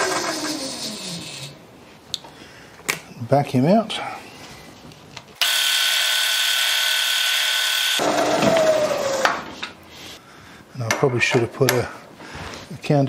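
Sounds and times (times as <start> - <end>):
milling machine spindle whine: 5.4 - 9.3.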